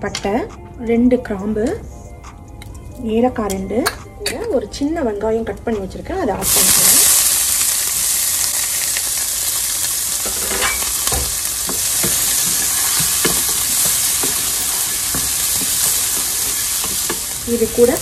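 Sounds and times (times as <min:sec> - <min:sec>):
onion sizzling in hot oil: 0:06.4 - 0:18.0
wooden spoon tapping pan: 0:10.2 - 0:18.0.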